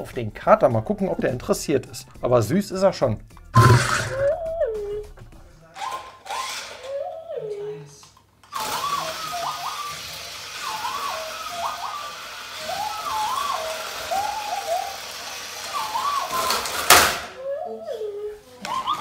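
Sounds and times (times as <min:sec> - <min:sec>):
toy droid electronic beeps: 0:03.6 - 0:04.6, 0:08.6 - 0:15.1.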